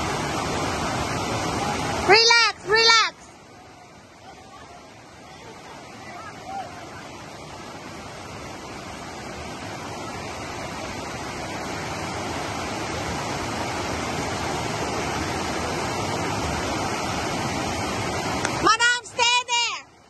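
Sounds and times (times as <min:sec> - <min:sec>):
river rapids rushing over rocks: 0:00.0 - 0:20.0.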